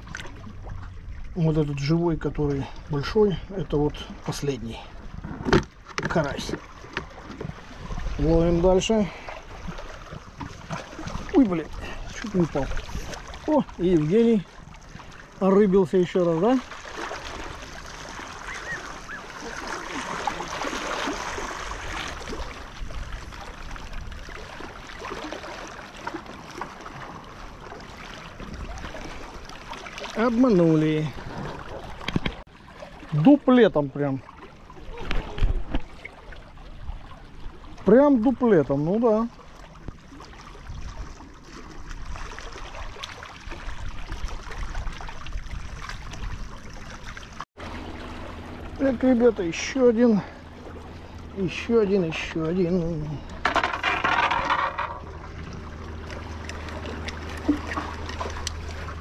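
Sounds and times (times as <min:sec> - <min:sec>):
small splashes and clicks: 0:00.0 - 0:00.9, 0:31.3 - 0:32.4, 0:53.1 - 0:59.0
sea water washing against breakwater: 0:00.0 - 0:59.0.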